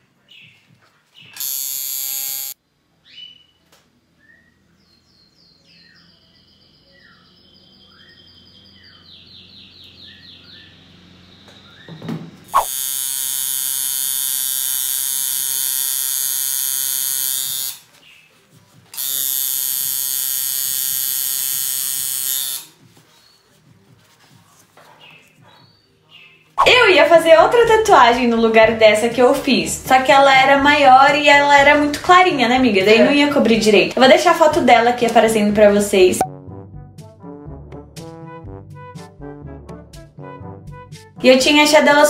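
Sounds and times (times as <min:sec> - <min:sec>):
tattoo machine buzzing: 0:01.3 - 0:02.6, 0:12.4 - 0:17.9, 0:18.9 - 0:22.9.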